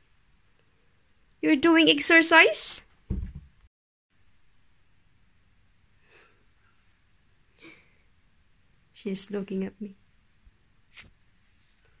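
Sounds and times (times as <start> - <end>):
cat landing on a box: 3.1 - 3.5.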